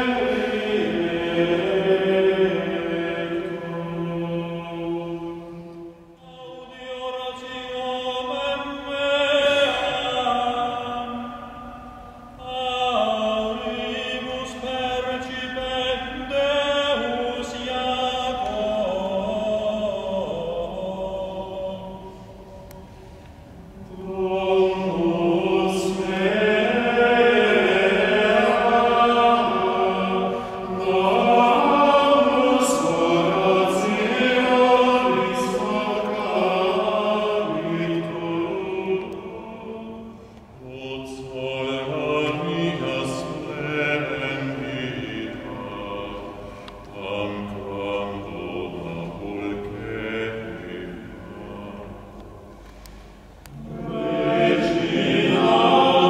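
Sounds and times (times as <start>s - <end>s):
men's voices singing chant: 23.9s - 46.4s, 53.5s - 56.0s.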